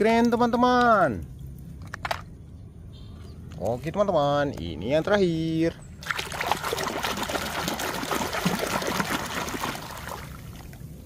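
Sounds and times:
water pouring and splashing: 6.0 - 11.0.

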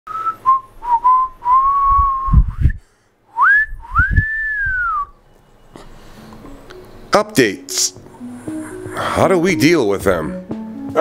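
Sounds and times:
person whistling a slow tune: 0.1 - 5.2.

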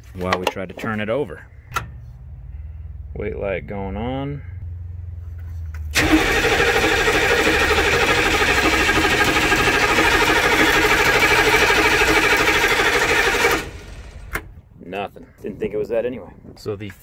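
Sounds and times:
diesel engine cranking: 5.9 - 14.6.

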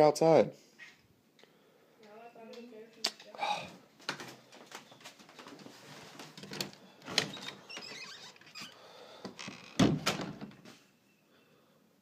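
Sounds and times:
door clicks and knocks: 9.7 - 10.6
door closing with thump: 9.7 - 10.6.

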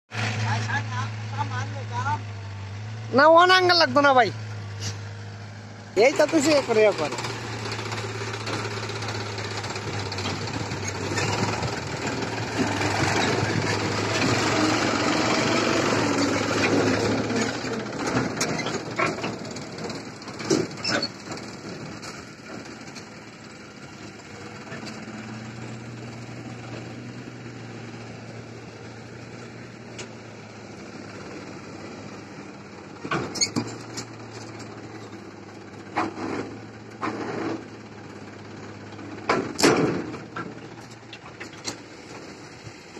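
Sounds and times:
tractor engine under load: 0.1 - 42.9
sharp clunks: 39.3 - 41.8.

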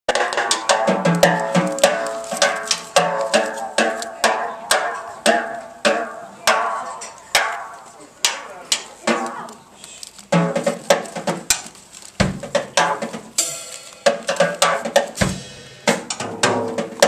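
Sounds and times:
drum kit hits: 0.1 - 8.5, 10.4 - 11.6, 12.2 - 17.0
pitched instrument notes: 12.8 - 16.6.

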